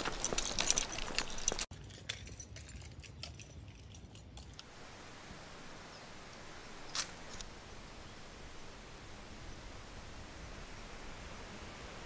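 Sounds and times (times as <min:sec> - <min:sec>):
small clicks and rattles: 0:00.0 - 0:04.7
faint hiss: 0:04.6 - 0:12.0.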